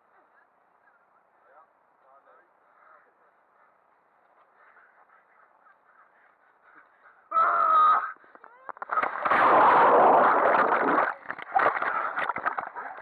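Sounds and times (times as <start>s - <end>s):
water splashing and rushing: 8.9s - 13.0s.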